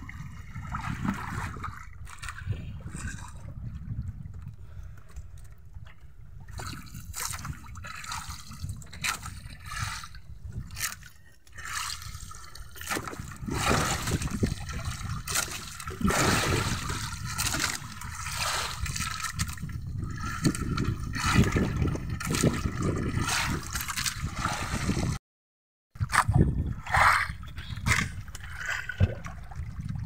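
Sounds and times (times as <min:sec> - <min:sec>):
low rumble of sea: 0:00.0 - 0:25.2, 0:26.0 - 0:30.0.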